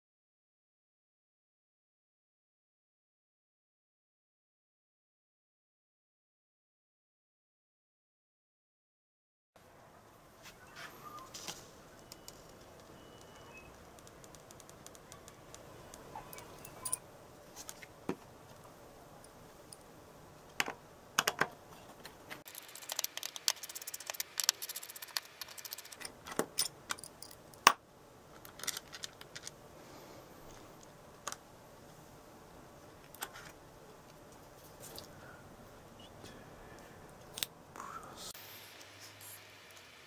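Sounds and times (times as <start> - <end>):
plastic parts clicking and knocking: 12.0 - 16.1, 20.5 - 21.6, 22.4 - 29.6
rapid plastic clicking: 12.0 - 16.1.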